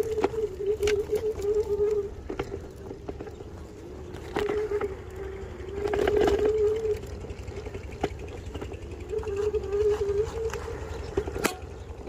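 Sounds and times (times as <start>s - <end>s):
electric scooter motor whining: 0.0s - 12.0s
scooter rattling over dirt: 0.0s - 12.0s.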